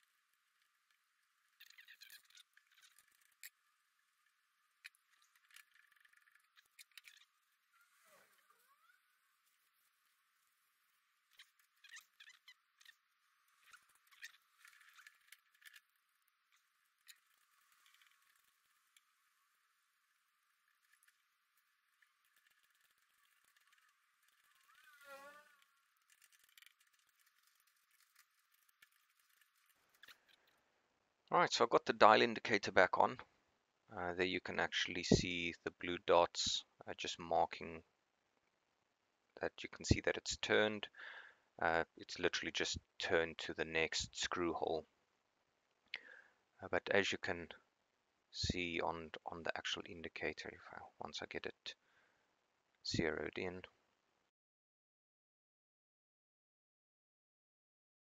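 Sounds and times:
faint clicks and metal scrapes: 0:00.0 - 0:30.7.

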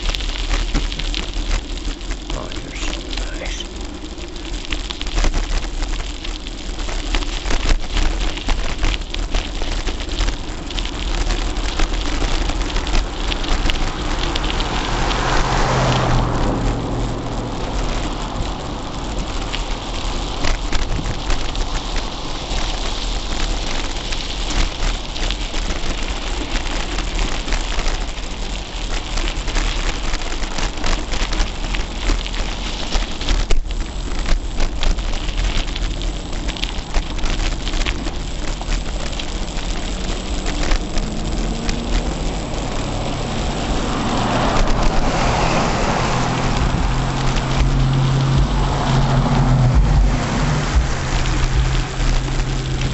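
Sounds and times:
bike rattling over rough pavement: 0:00.0 - 0:52.9
wind rumbling on microphone: 0:00.0 - 0:52.9
truck engine close by: 0:14.0 - 0:19.2, 0:41.0 - 0:52.9.

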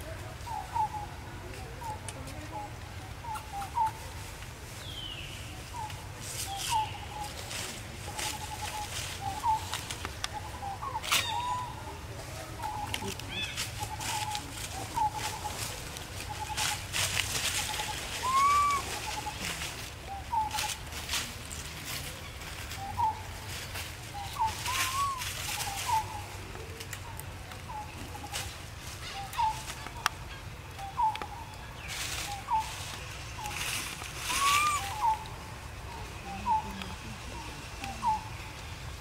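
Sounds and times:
animal chirping calls: 0:18.2 - 0:19.3, 0:34.3 - 0:35.2.

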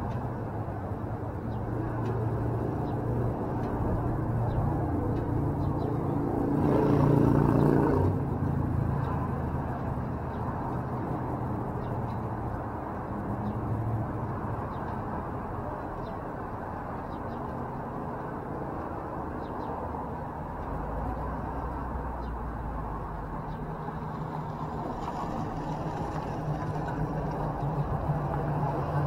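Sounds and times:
street traffic noise: 0:00.0 - 0:29.0
car driving by: 0:24.0 - 0:29.0.

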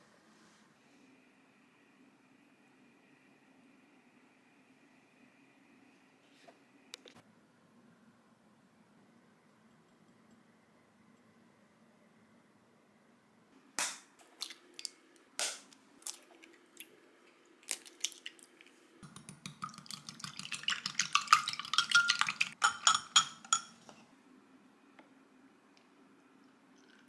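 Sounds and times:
eggs cracking: 0:13.8 - 0:23.5
whisk beating in glass bowl: 0:19.0 - 0:23.7.

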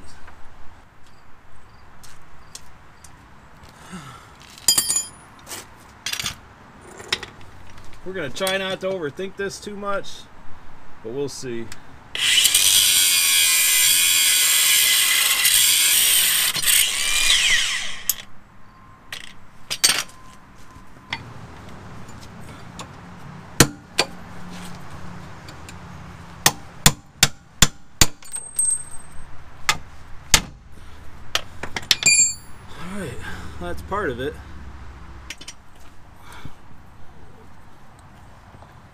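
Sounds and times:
angle grinder cutting steel: 0:12.2 - 0:18.2.

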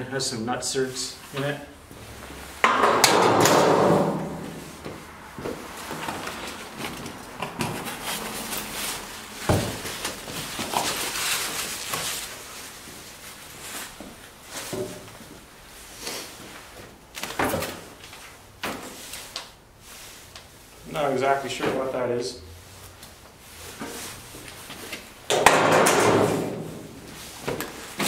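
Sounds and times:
sheet-metal panels knocking: 0:02.6 - 0:04.6, 0:25.3 - 0:26.8
cardboard scuffing: 0:04.0 - 0:12.3
packaging rustling and crinkling: 0:05.7 - 0:14.1.

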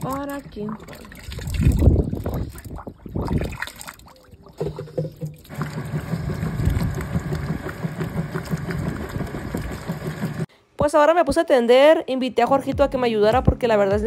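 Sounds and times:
hand splashing in water: 0:00.7 - 0:05.5
hose running water: 0:04.5 - 0:10.5
washing machine churning: 0:05.4 - 0:10.5.

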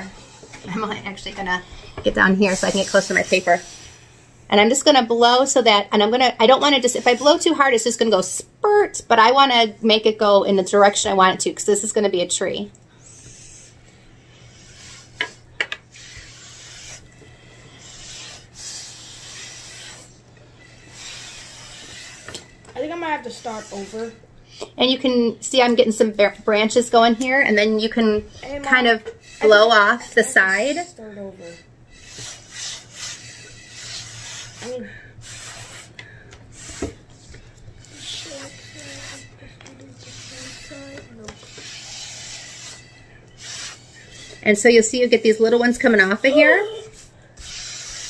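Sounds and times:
airy puffs through a straw: 0:02.4 - 0:04.2, 0:06.6 - 0:07.6, 0:13.0 - 0:22.6, 0:28.4 - 0:30.8, 0:31.5 - 0:48.0
breath blown through straw: 0:15.9 - 0:22.3, 0:31.9 - 0:36.9, 0:41.5 - 0:44.4, 0:46.9 - 0:48.0.

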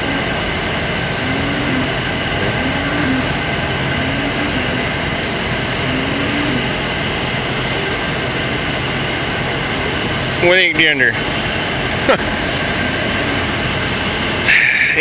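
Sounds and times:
ventilation fan drone: 0:00.0 - 0:15.0
faint low rising tone: 0:01.1 - 0:06.8.

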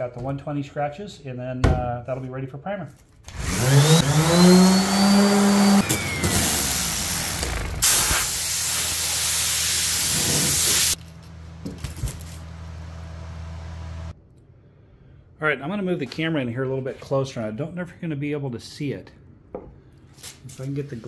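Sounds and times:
orbital sander whining: 0:03.3 - 0:07.8
air blow gun hissing: 0:04.6 - 0:11.0.

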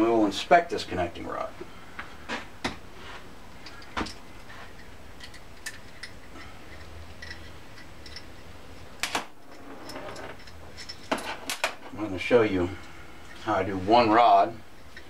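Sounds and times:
low steady hum: 0:00.0 - 0:15.0
metal parts clicking and knocking: 0:03.6 - 0:11.8.

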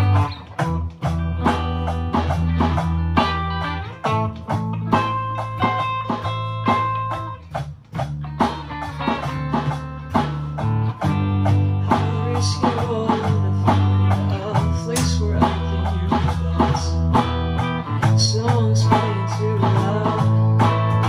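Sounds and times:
drums: 0:00.0 - 0:21.0
electric guitars: 0:00.0 - 0:21.0
person singing: 0:11.4 - 0:21.0.

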